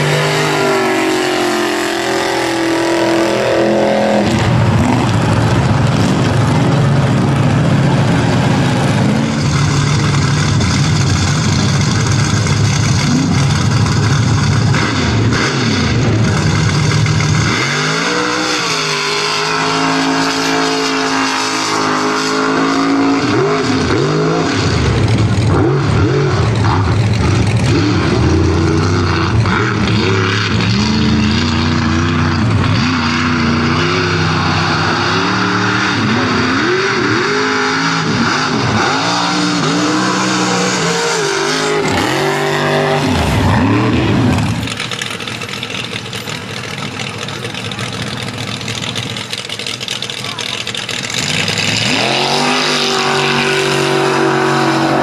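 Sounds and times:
truck engine revving: 0.0s - 55.0s
engine idling: 4.4s - 17.6s, 24.6s - 32.8s, 42.0s - 51.9s.

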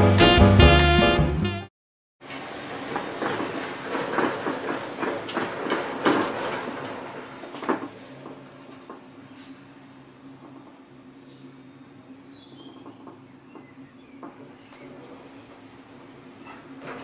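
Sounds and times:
cable car grip clattering: 2.2s - 9.1s
cable car steady hum: 2.2s - 17.0s.

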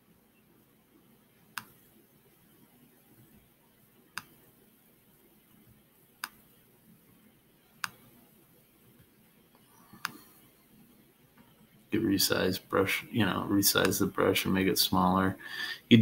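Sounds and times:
computer mouse clicks: 1.5s - 1.8s, 4.1s - 4.4s, 6.2s - 6.5s, 7.8s - 8.1s, 9.9s - 10.3s.

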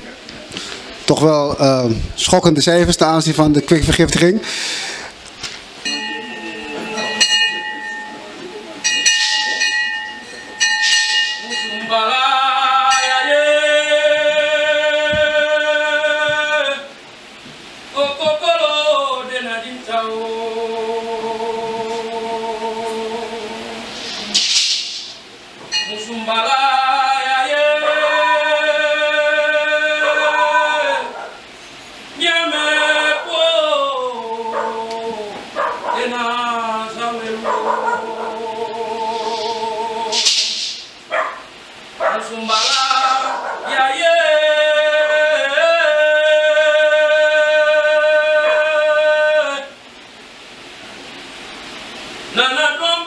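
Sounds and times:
man chanting: 1.0s - 4.5s, 11.4s - 16.9s, 26.0s - 31.3s, 32.2s - 40.3s, 42.0s - 49.8s, 52.3s - 53.0s
man singing a held note: 36.0s - 40.8s, 42.2s - 49.8s
gourd rattle shaking: 42.5s - 43.3s.

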